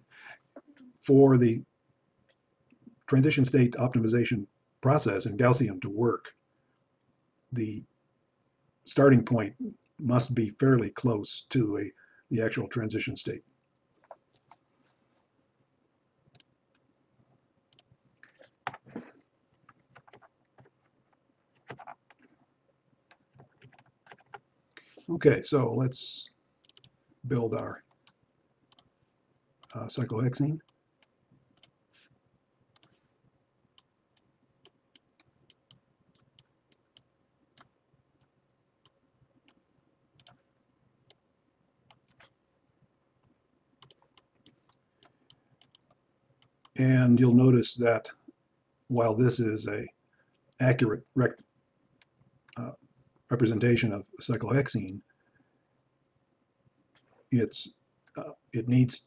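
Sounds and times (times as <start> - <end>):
computer mouse clicks: 17.7 - 18.9, 26.6 - 27.0, 27.9 - 28.9, 30.6 - 31.8, 32.7 - 33.0, 33.8 - 37.7, 40.2 - 40.4, 43.8 - 46.8
mouse and keyboard clicks: 21.6 - 22.2, 23.1 - 24.4.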